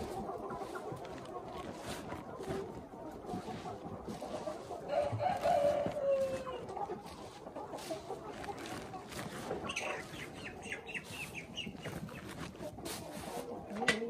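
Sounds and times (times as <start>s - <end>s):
chickens clucking: 0.0s - 14.0s
rooster crowing: 4.9s - 6.5s.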